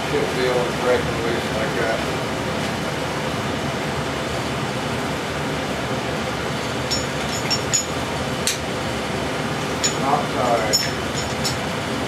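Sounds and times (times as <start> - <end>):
wrench clinking on bolts: 6.8 - 8.0, 9.8 - 11.6.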